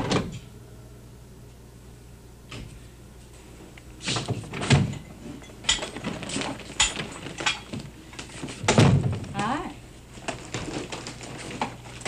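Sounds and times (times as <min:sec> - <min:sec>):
door opening and shutting: 0:00.0 - 0:00.5, 0:04.0 - 0:05.0.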